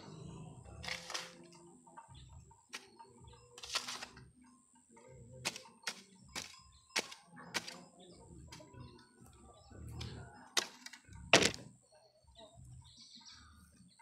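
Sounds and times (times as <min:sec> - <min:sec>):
hoe chopping into stony soil: 0:00.8 - 0:01.4, 0:03.6 - 0:04.2, 0:05.4 - 0:07.8, 0:10.6 - 0:11.7.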